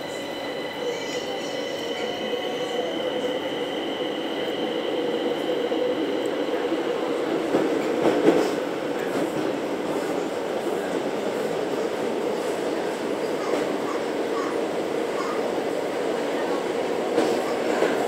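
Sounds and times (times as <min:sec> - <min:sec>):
high train whine: 0:00.0 - 0:18.0
train rumble and rattle: 0:00.0 - 0:18.0
train clatter: 0:07.1 - 0:10.2.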